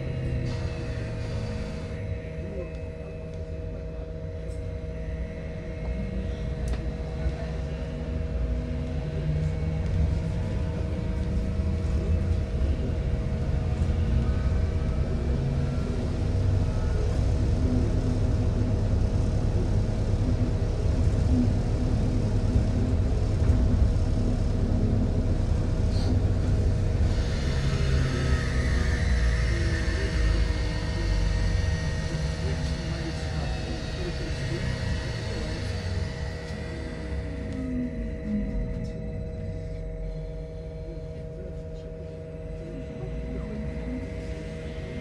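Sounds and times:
rumble of body and tyres: 0:00.0 - 0:45.0
steady electrical hums: 0:00.0 - 0:45.0.

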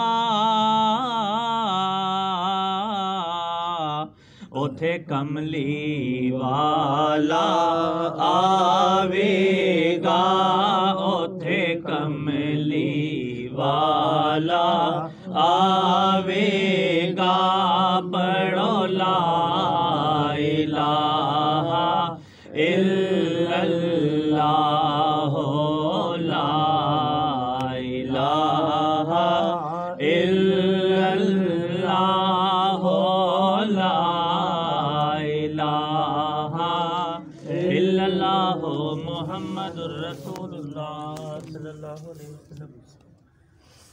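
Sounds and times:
person chanting: 0:00.0 - 0:43.1
breaths: 0:04.1 - 0:04.6, 0:15.1 - 0:15.4, 0:22.2 - 0:22.6, 0:43.2 - 0:43.9.

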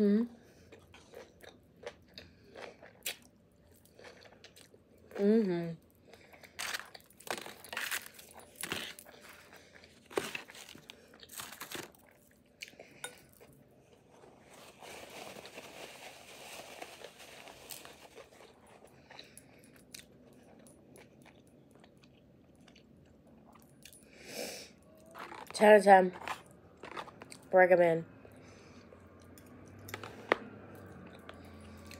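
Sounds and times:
person crunching food: 0:00.6 - 0:05.3, 0:06.0 - 0:24.0, 0:24.8 - 0:27.5.

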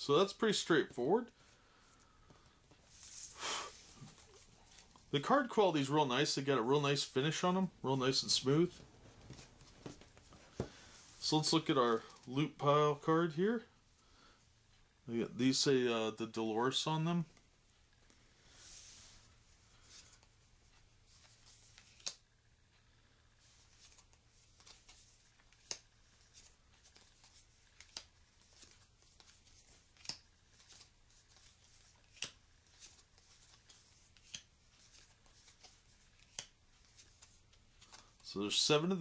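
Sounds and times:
cards sliding swishes: 0:02.2 - 0:04.9, 0:18.1 - 0:20.3, 0:21.0 - 0:22.3, 0:23.4 - 0:38.6.

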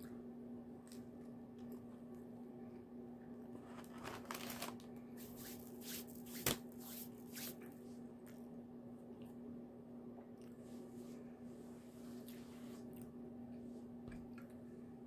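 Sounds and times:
steady low hum: 0:00.0 - 0:15.0
food packaging crinkling: 0:03.6 - 0:04.9.

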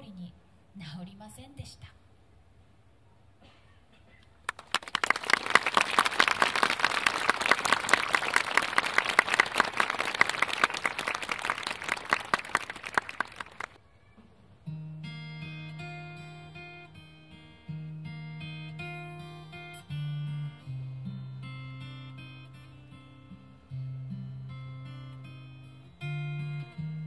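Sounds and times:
audience applauding: 0:04.5 - 0:13.8
acoustic guitar playing: 0:14.6 - 0:27.0.

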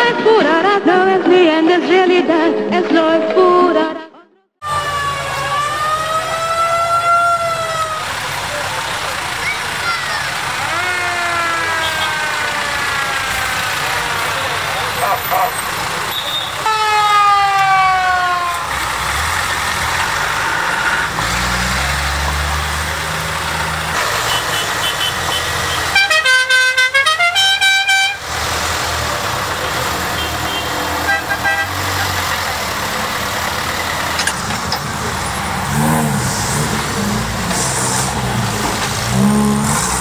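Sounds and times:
car engines running: 0:04.6 - 0:40.0
falling horn tone: 0:10.7 - 0:13.0
musical horn tune: 0:24.2 - 0:28.2.

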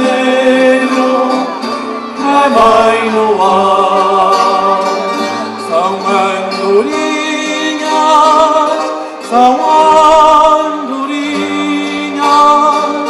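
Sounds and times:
guitar accompaniment: 0:00.0 - 0:13.0
man singing with vibrato: 0:00.0 - 0:13.0.

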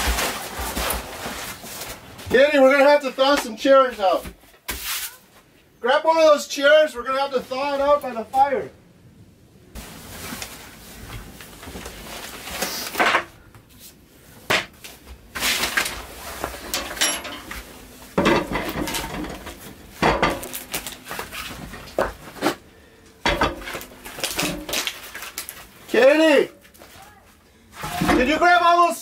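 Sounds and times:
metal stove clanks: 0:16.7 - 0:17.5, 0:23.2 - 0:24.8.

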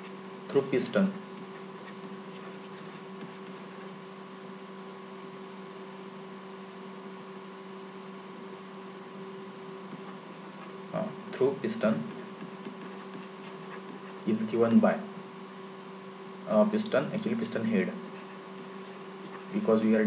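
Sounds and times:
electrical hum: 0:00.0 - 0:20.0.

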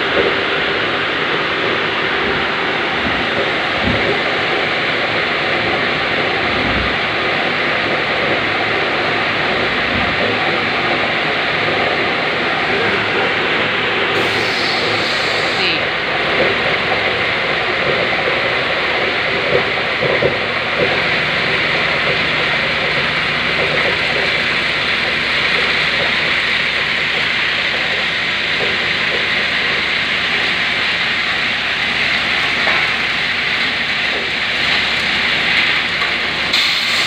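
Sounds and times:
machine hissing rush: 0:12.1 - 0:16.1, 0:36.4 - 0:37.0.

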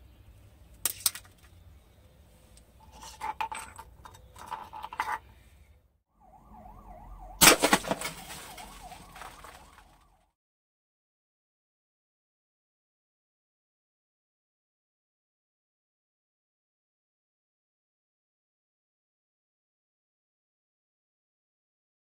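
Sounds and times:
siren wailing: 0:06.1 - 0:10.4
sharp cracks: 0:07.4 - 0:10.0.

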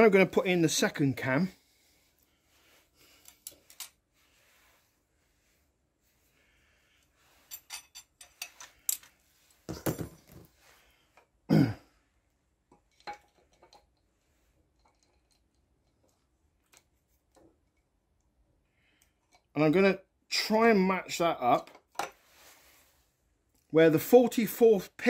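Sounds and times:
person clearing throat: 0:11.5 - 0:11.9.

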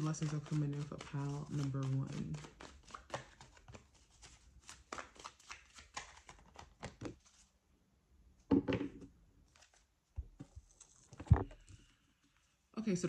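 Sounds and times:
cards being shuffled: 0:00.0 - 0:07.5, 0:09.5 - 0:11.7.

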